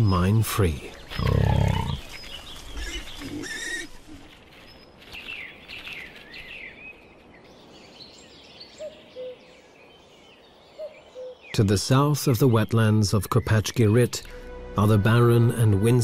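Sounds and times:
birds chirping: 0.0 - 15.3
rustling: 1.0 - 6.6.

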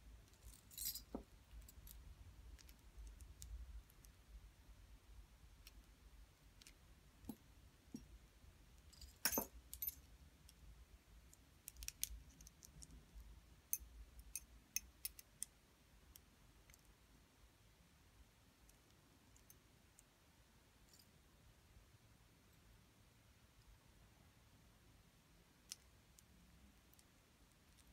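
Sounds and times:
metal rings clinking: 0.5 - 1.2, 9.0 - 10.0.

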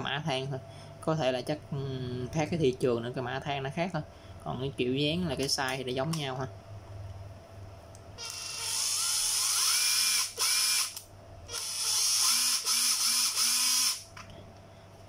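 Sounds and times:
impact driver motor whine: 8.2 - 14.1.

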